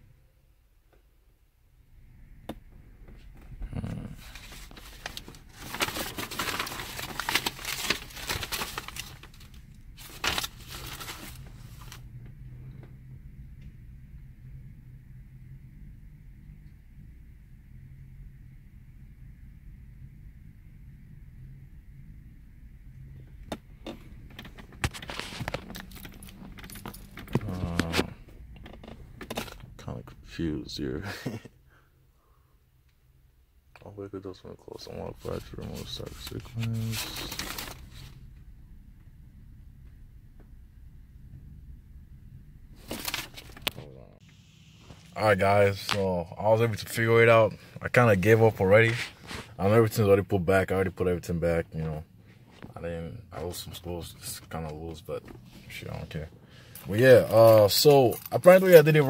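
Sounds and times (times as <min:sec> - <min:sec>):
faint low hum: 0:00.0 - 0:59.0
crinkling and rustling handling noise: 0:03.0 - 0:12.1, 0:23.4 - 0:30.2, 0:33.8 - 0:38.4, 0:42.7 - 0:51.1, 0:51.7 - 0:59.0
car keys jangling: 0:24.3 - 0:27.8.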